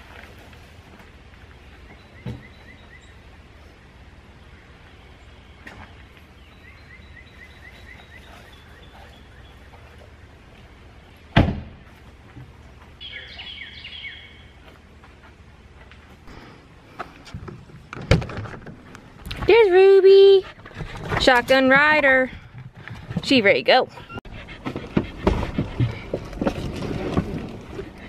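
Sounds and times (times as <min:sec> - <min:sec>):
outdoor background noise: 0:00.0 - 0:28.0
birds chirping: 0:01.5 - 0:11.3, 0:12.9 - 0:15.2
car door slamming: 0:11.4 - 0:11.8.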